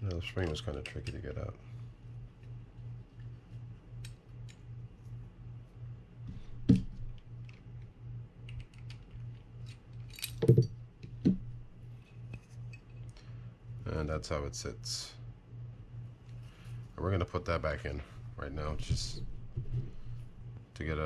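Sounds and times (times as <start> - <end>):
low pulsing hum: 0.0 - 21.0
small metal parts clicking: 7.4 - 10.7.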